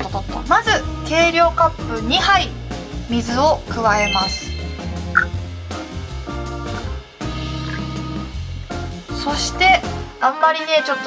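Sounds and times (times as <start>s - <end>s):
background music: 0.0s - 11.0s
short high note: 4.0s - 5.3s.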